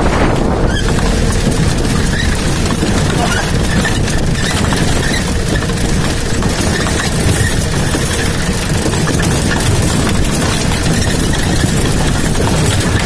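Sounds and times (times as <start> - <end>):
jeep engine running: 0.0 - 13.0
knocks and rattles over bumps: 0.0 - 13.0.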